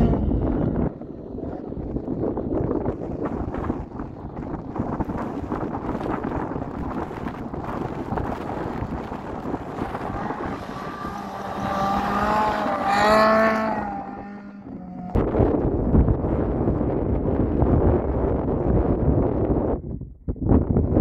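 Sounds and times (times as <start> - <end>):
wind buffeting microphone: 0.0 - 21.0
rally car engine passing: 6.7 - 15.4.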